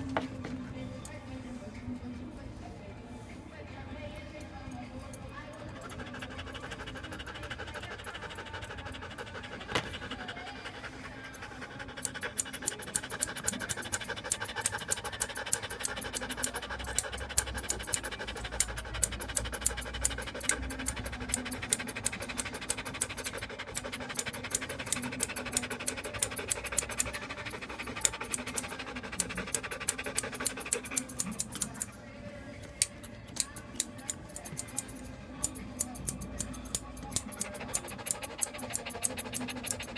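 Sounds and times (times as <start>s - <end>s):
dog panting: 4.2s - 39.9s
scissors snipping hair: 11.9s - 32.0s, 32.6s - 39.9s.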